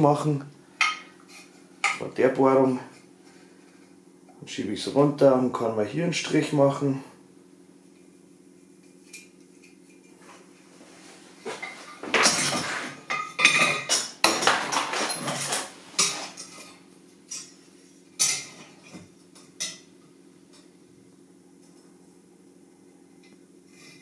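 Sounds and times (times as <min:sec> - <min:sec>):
faint steady hum: 0:00.0 - 0:24.0
metal tools clattering: 0:11.5 - 0:17.6.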